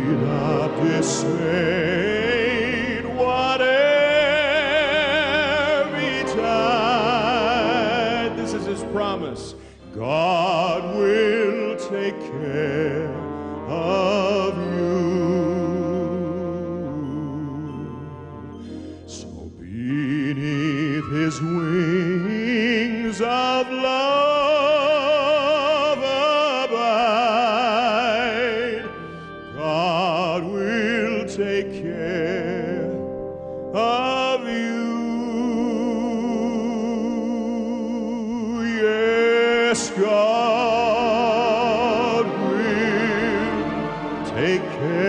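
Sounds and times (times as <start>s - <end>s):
operatic solo singing: 0.0s - 18.0s, 18.6s - 33.1s, 33.8s - 45.0s
instrumental accompaniment: 0.0s - 45.0s
singer breathing: 9.5s - 10.0s, 18.6s - 19.1s, 29.0s - 29.5s, 33.3s - 33.7s.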